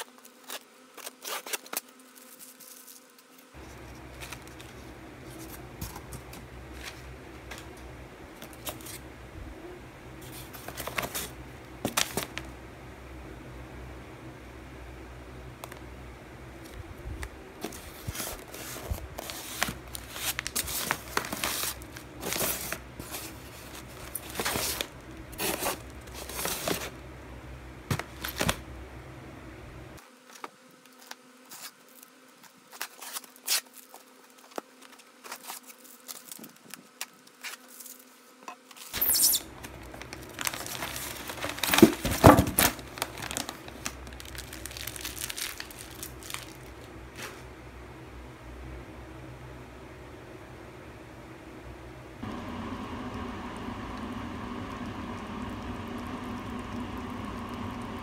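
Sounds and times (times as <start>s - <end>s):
plastic pouches crinkling: 17.6s - 26.9s, 27.9s - 28.6s, 38.9s - 47.4s.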